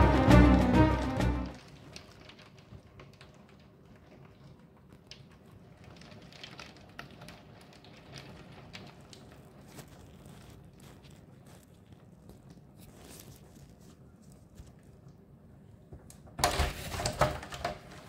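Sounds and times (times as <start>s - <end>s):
hail ticking on window: 1.6s - 11.6s.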